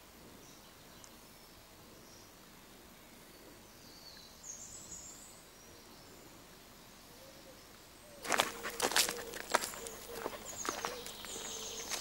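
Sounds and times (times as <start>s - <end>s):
footsteps crunching on path: 8.2s - 12.0s.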